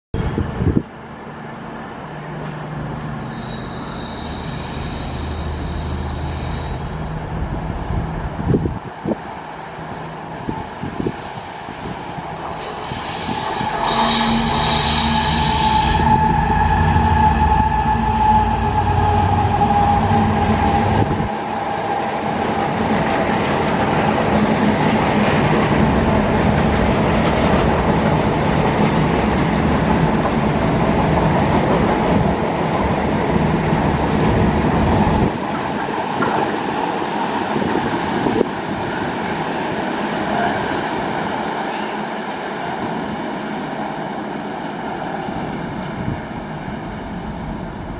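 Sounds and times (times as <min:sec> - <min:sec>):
high ringing squeal: 0:00.2 - 0:00.6, 0:03.2 - 0:07.2, 0:12.4 - 0:22.8, 0:38.0 - 0:39.8
diesel locomotive engine: 0:00.2 - 0:47.9
wagon wheels rumbling on rail: 0:10.5 - 0:42.0.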